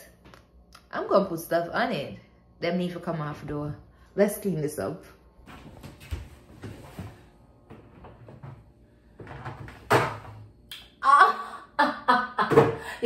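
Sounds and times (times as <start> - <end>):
knocks and clatter at refrigerator: 5.6 - 10.5.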